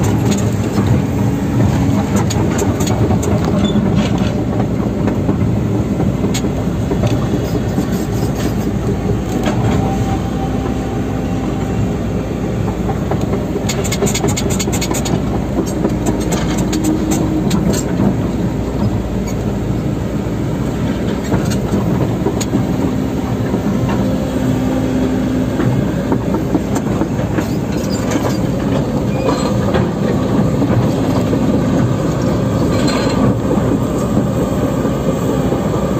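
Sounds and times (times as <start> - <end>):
rattles and metallic clanks: 0.0 - 10.0, 12.6 - 19.6, 25.5 - 34.4
diesel engine running: 0.0 - 35.9.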